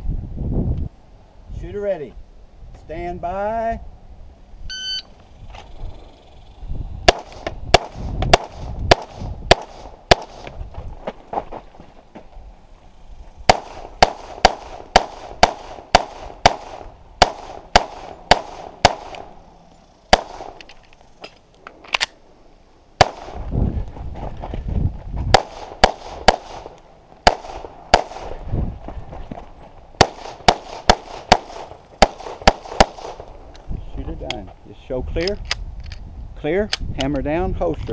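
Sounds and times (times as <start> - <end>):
pistol firing rapid shots: 7.1 - 10.4, 13.5 - 19.2, 20.1 - 20.6, 23.0 - 23.4, 25.3 - 28.3, 30.0 - 33.2.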